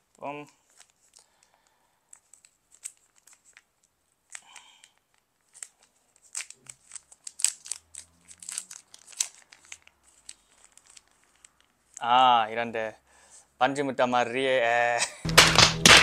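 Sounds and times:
packaging packet crinkling: 0.0s - 12.1s.

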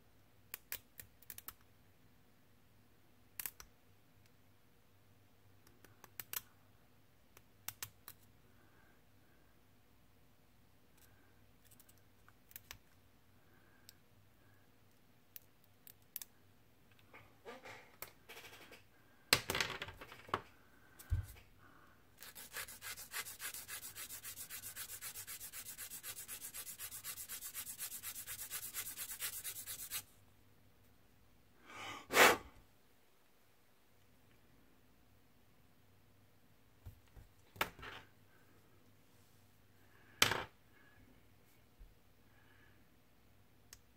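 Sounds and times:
plastic part being sanded: 22.2s - 30.0s.

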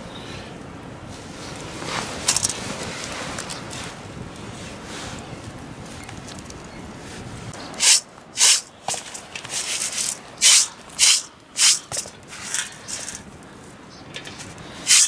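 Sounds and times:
corn kernels scraping metal pan: 7.8s - 13.2s, 14.2s - 15.0s.

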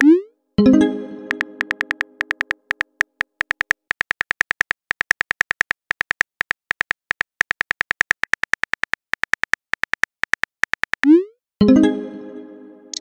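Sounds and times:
keyboard typing clicks: 0.0s - 0.2s, 1.2s - 11.2s.

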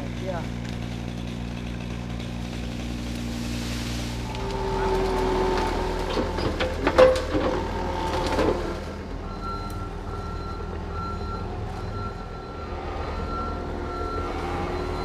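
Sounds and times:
diesel engine running: 0.0s - 15.0s
brush cracking and knocking: 0.4s - 8.6s
backup alarm beeping: 9.2s - 15.0s.

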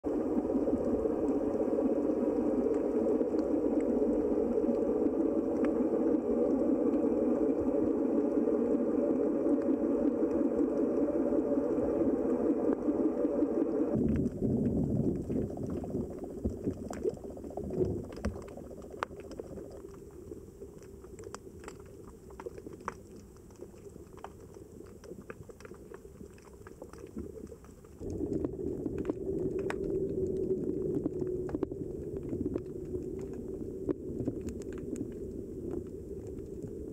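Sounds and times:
underwater water rush: 0.0s - 36.9s
sharp underwater clicks: 16.4s - 36.9s.

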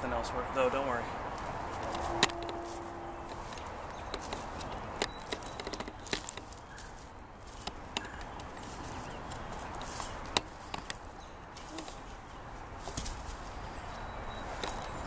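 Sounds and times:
footsteps crunching dry leaves: 1.3s - 15.0s
dead sticks cracking: 3.3s - 12.2s.

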